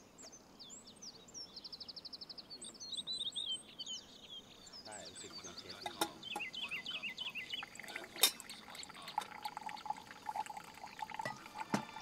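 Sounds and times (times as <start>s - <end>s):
coffee pouring into a steel tumbler: 6.9s - 12.0s.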